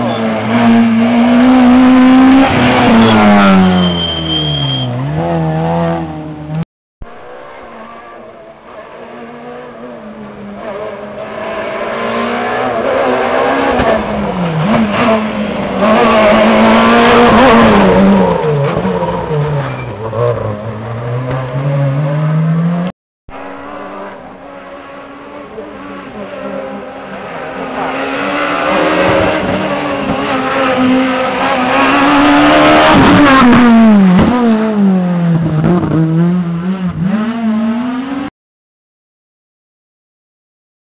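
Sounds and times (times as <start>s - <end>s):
rally car passing with gear changes: 0.0s - 6.6s, 7.2s - 38.3s.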